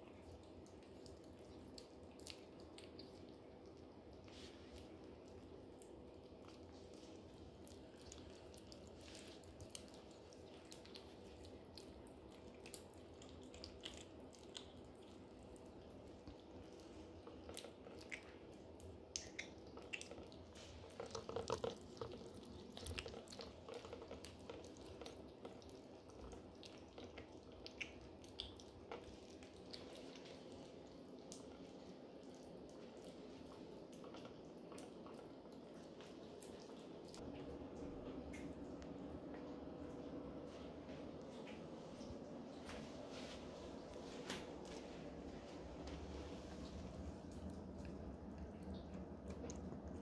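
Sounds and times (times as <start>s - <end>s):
kittens chewing wet food: 0.0s - 50.0s
low steady hum: 0.0s - 50.0s.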